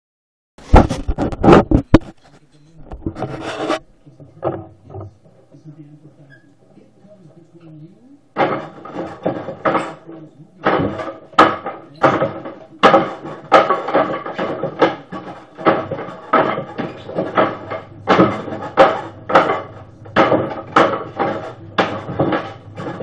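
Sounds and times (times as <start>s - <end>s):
arms striking wooden dummy: 8.4s - 23.0s.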